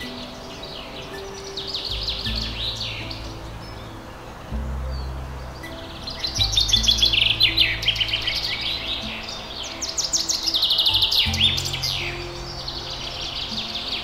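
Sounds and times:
soft music of low held notes: 0:00.0 - 0:14.0
songbirds chirping and trilling: 0:00.0 - 0:14.0.

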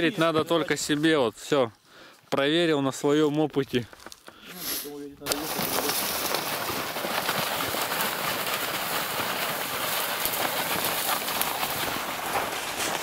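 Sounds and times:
dry reeds rustling against clothing: 0:03.7 - 0:07.4, 0:10.2 - 0:13.0
footsteps crunching on snow: 0:05.3 - 0:13.0.

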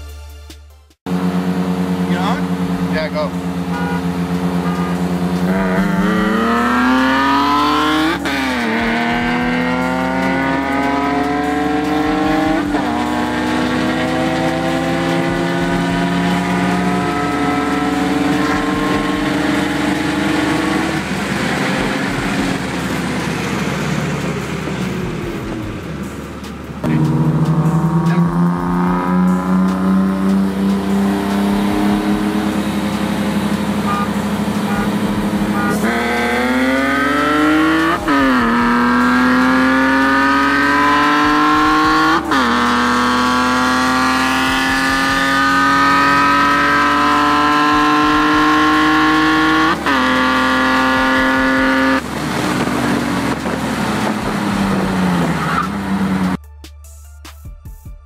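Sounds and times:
music: 0:00.0 - 0:01.0, 0:08.5 - 0:20.1, 0:24.8 - 0:36.6, 0:56.4 - 0:58.0
car engine accelerating through gears: 0:01.1 - 0:56.4.

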